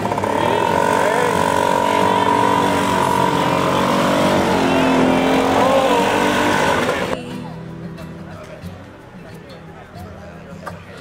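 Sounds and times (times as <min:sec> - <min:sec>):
scooter engine pulling away: 0:00.0 - 0:07.2.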